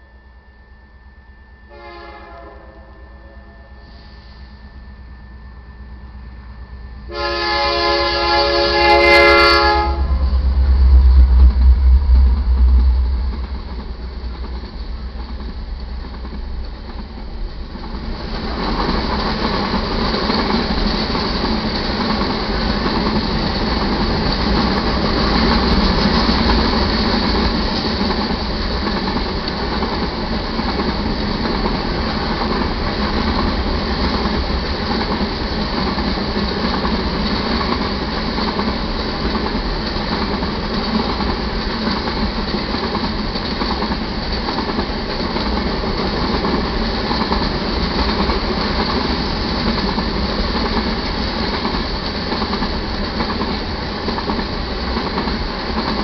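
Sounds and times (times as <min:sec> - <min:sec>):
train horn: 0:01.7 - 0:04.5, 0:07.0 - 0:10.5
locomotive rumble: 0:01.8 - 0:56.0
train wheels clickety-clack: 0:08.0 - 0:56.0.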